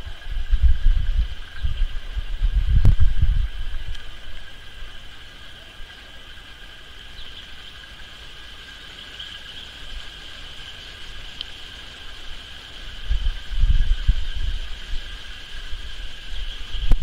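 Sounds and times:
low rumble: 0.0s - 4.9s
faint chirps: 1.4s - 17.0s.

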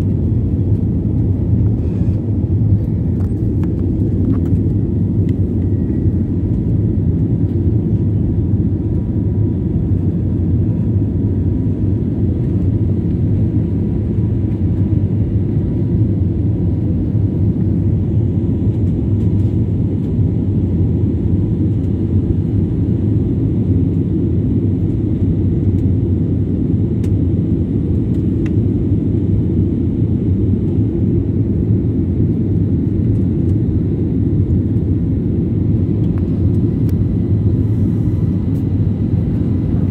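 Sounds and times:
jet engine and airflow cabin noise: 0.0s - 39.9s.

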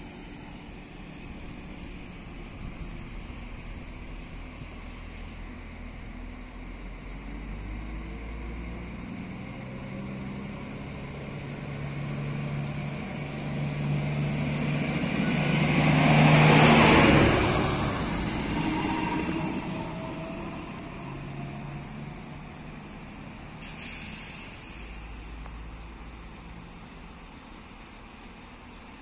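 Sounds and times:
diesel railcar engine hum: 0.0s - 29.0s
train wheel noise: 12.2s - 25.4s.

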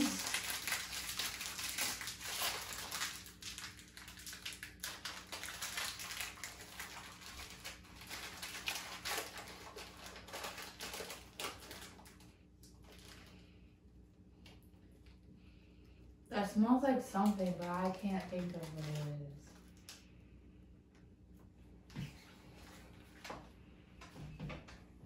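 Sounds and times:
plastic package crinkling: 0.0s - 13.5s, 17.2s - 20.0s.

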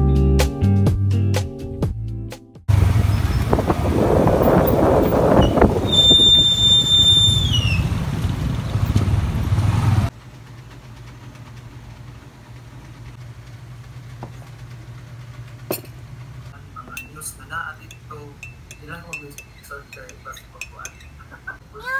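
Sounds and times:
street traffic: 2.7s - 21.9s
low steady hum: 10.2s - 21.8s.

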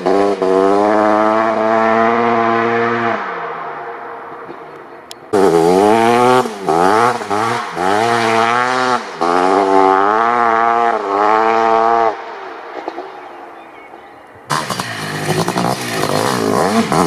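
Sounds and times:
two-stroke engine at full throttle: 0.0s - 2.4s, 5.3s - 12.2s, 14.5s - 17.0s.

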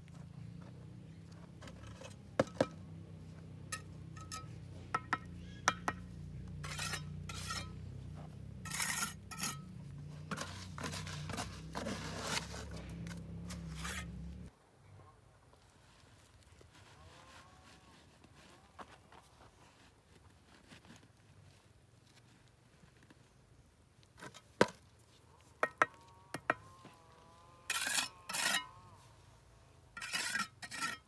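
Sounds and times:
hard objects scraping: 1.3s - 2.8s, 3.6s - 14.5s, 27.7s - 28.8s, 29.9s - 31.0s.

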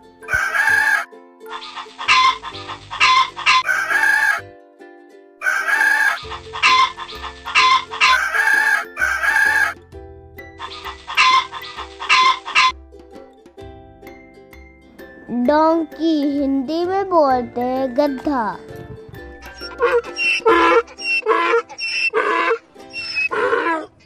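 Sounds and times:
rooster crowing: 0.3s - 1.0s, 1.6s - 4.4s, 5.4s - 9.8s, 11.1s - 12.7s, 19.6s - 22.6s, 23.2s - 23.9s
hen clucking: 0.3s - 4.4s, 5.4s - 9.8s, 10.6s - 12.7s, 19.4s - 24.0s.

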